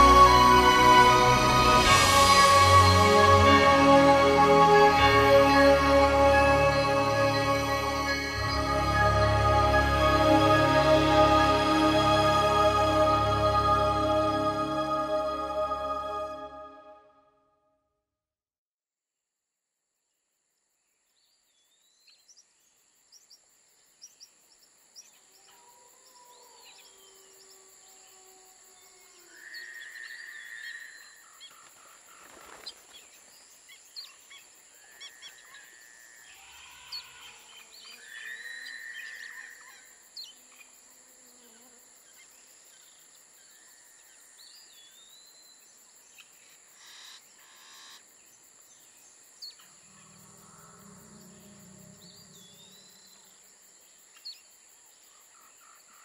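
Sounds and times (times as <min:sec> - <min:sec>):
high insect drone: 0:00.0 - 0:16.4, 0:34.5 - 0:56.0.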